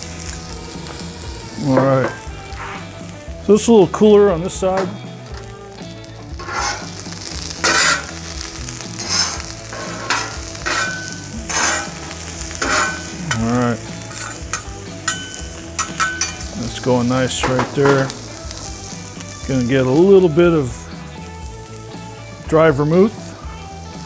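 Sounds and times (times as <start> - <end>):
onions sizzling in oil: 0.0 - 24.0
metal spatulas scraping griddle: 1.8 - 2.9, 6.4 - 8.2, 8.9 - 16.5.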